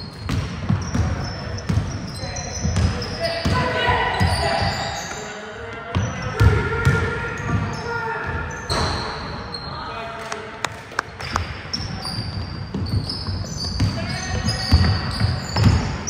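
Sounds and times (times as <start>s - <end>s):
sneaker squeaks: 0.0s - 10.2s, 11.1s - 16.0s
voices echoing in hall: 0.0s - 16.0s
basketball bouncing on hardwood floor: 0.3s - 1.9s, 14.6s - 16.0s.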